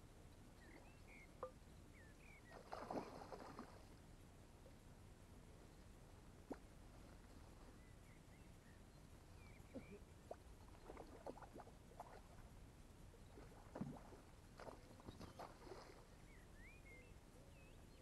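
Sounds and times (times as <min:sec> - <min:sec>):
small birds chirping: 0:00.6 - 0:02.9, 0:07.6 - 0:11.4, 0:14.6 - 0:18.0
fish splashing in water: 0:02.5 - 0:03.9, 0:13.4 - 0:16.1.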